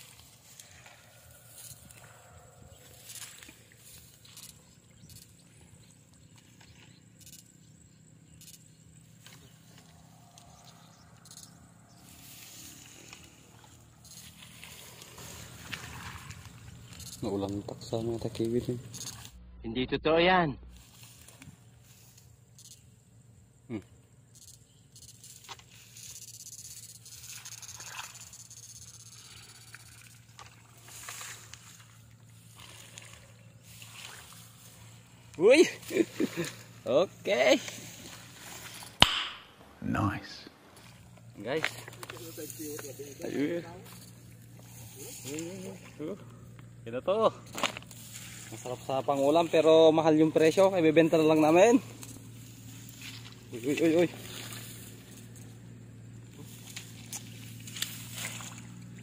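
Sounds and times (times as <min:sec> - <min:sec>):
wet grass rustling and swishing: 0:00.0 - 0:02.0, 0:12.0 - 0:17.2, 0:20.8 - 0:22.2, 0:29.2 - 0:39.0, 0:41.7 - 0:46.1, 0:47.5 - 0:49.7, 0:51.3 - 0:59.0
low steady hum: 0:00.0 - 0:59.0.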